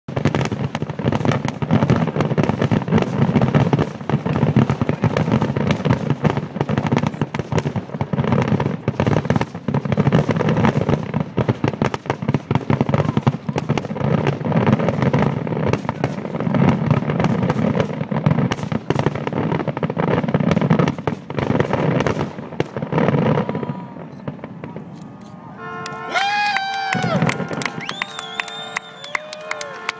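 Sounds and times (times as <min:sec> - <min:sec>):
firework shells bursting: 0:24.0 - 0:29.9.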